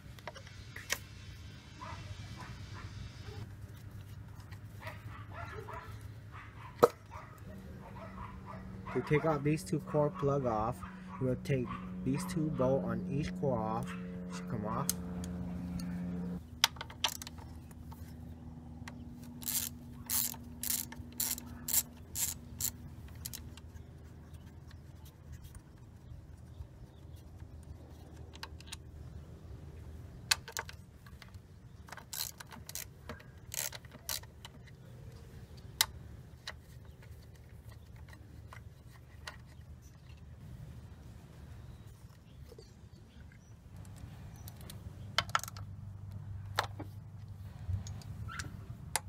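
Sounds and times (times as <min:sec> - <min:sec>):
socket ratchet clicking: 0:18.9 - 0:23.6, 0:31.8 - 0:34.6.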